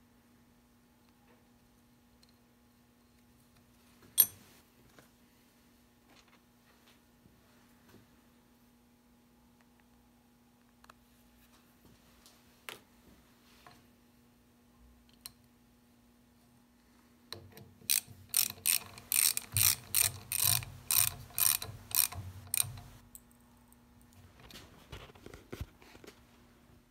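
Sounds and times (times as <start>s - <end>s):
hand ratchet clicking: 17.5s - 23.0s.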